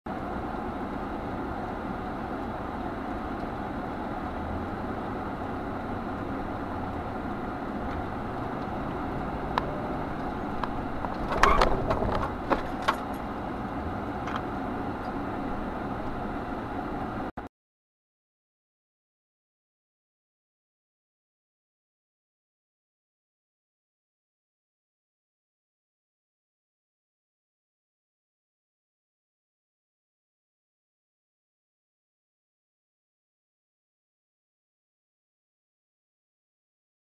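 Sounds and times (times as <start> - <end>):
car engine and road noise: 0.1 - 17.4
sharp clicks and knocks: 9.6 - 13.3.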